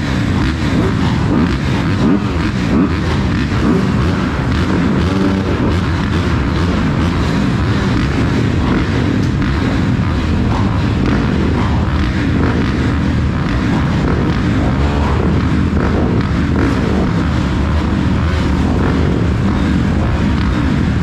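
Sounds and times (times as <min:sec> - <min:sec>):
dirt bike engine running: 0:00.0 - 0:21.0.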